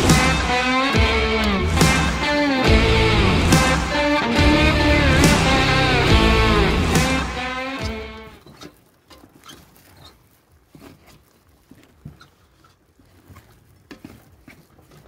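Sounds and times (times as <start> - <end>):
background music: 0.0 - 8.4.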